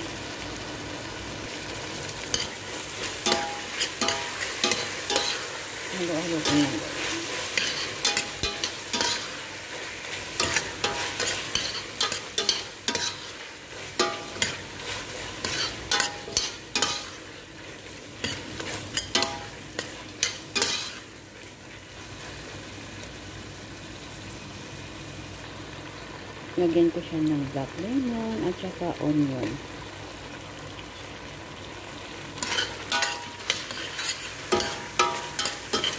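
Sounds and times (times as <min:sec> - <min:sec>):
food sizzling in oil: 0:00.0 - 0:35.9
metal spoon scraping a pot: 0:06.4 - 0:09.4, 0:10.4 - 0:17.0, 0:32.4 - 0:35.9.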